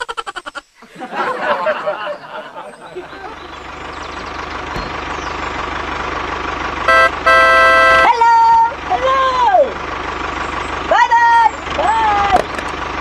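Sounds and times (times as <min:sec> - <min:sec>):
tractor engine chugging: 0:02.8 - 0:13.0
horn honking: 0:06.7 - 0:08.8.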